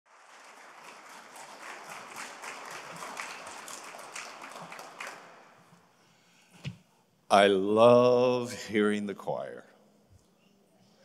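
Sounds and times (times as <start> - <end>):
audience applauding: 0.1 - 5.7.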